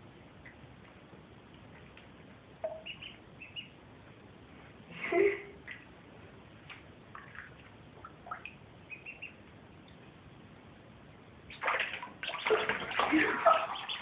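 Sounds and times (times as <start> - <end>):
ducklings peeping: 2.6 - 3.8, 7.2 - 10.0, 11.4 - 14.0
water splashing: 11.5 - 14.0.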